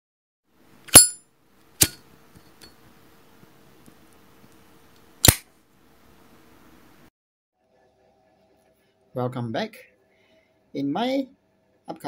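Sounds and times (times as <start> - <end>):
metallic ringing ping: 0.9 - 1.2.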